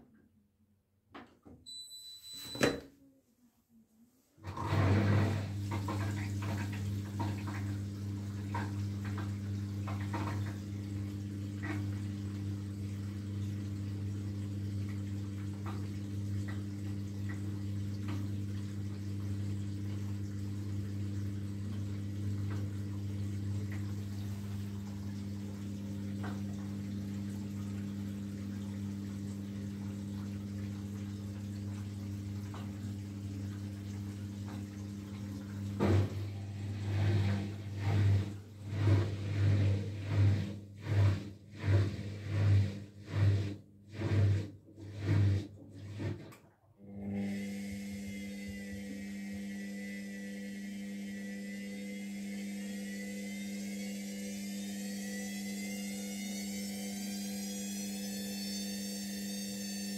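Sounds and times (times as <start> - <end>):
washing machine hum: 1.2 - 3.0, 4.3 - 59.9
water running: 4.4 - 46.4
washing machine drum motor turning: 4.4 - 59.9.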